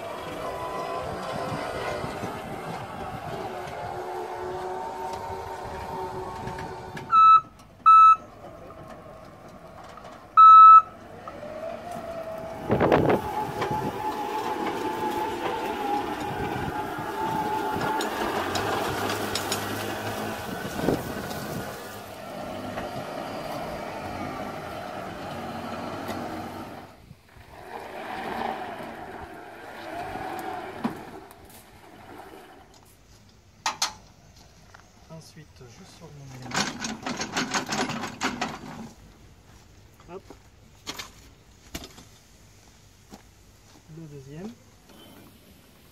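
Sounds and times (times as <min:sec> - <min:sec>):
robot electric drive whining: 0:00.0 - 0:07.5, 0:08.4 - 0:32.7
short electronic beeps: 0:07.1 - 0:08.2, 0:10.4 - 0:10.9.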